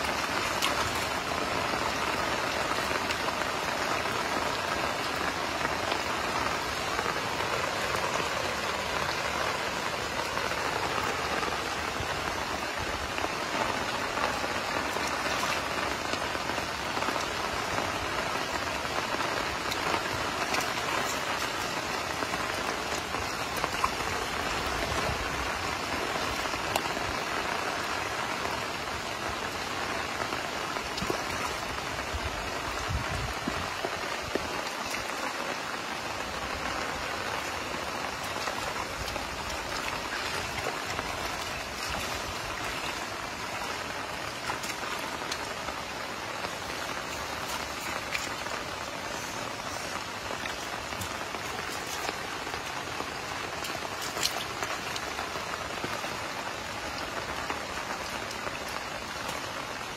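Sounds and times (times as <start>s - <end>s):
rain on standing water: 0.0s - 59.9s.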